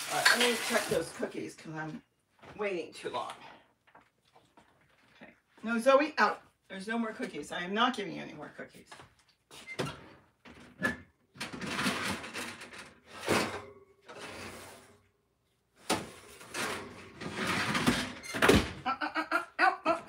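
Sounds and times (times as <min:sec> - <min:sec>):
baking tray scraping oven rack: 0:11.6 - 0:15.0, 0:16.0 - 0:18.5.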